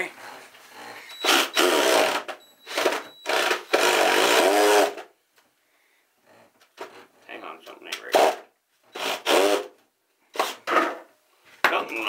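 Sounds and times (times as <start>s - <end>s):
power tool running: 0.2s - 5.0s, 8.9s - 9.7s.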